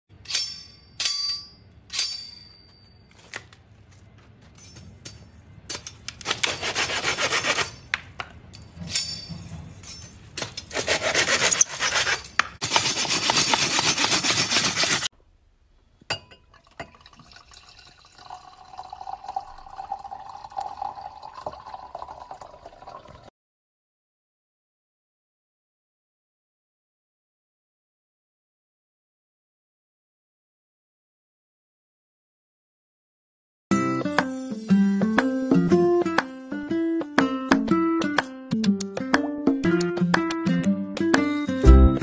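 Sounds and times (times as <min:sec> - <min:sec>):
metallic clinks of saw blades: 0:00.2 - 0:03.0
hand saw cutting wood: 0:06.2 - 0:07.8, 0:10.6 - 0:15.1
wine pouring into glass: 0:16.4 - 0:23.3.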